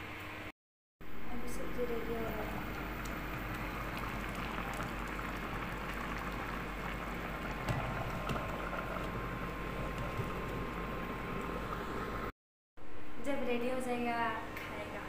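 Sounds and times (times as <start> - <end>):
curry bubbling in a pan: 2.5 - 12.2.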